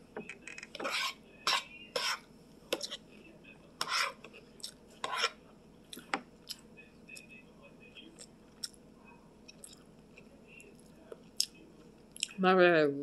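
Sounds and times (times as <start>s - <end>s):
spoon scraping a plate: 0.4s - 3.0s, 3.8s - 4.4s, 5.0s - 5.4s.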